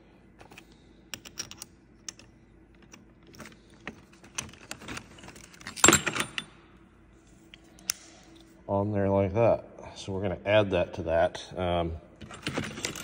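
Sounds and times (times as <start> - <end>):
small metal parts clicking: 0.4 - 6.5.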